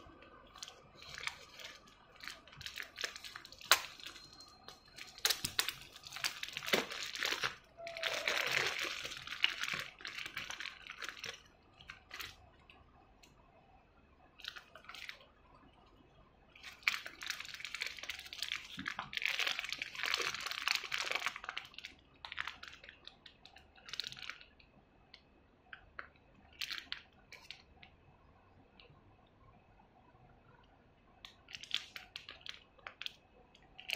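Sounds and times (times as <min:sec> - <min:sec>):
plastic bags crinkling: 0:00.5 - 0:12.4, 0:16.6 - 0:23.0.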